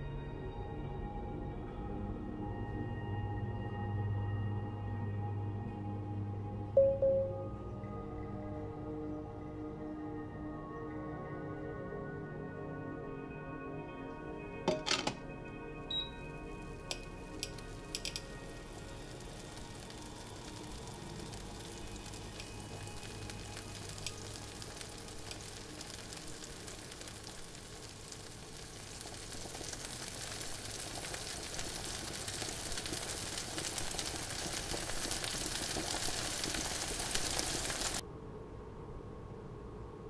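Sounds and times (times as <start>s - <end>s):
bacon and egg sizzling in a pan: 16.2s - 38.0s.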